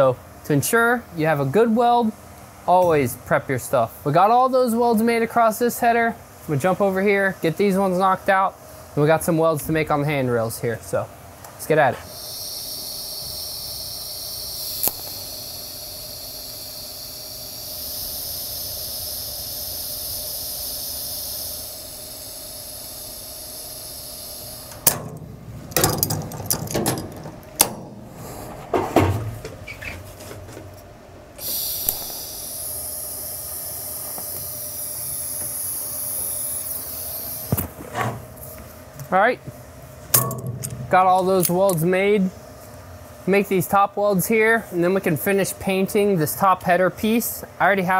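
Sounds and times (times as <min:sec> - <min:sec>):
welding arc hissing: 0:11.7 - 0:25.8, 0:31.4 - 0:37.6.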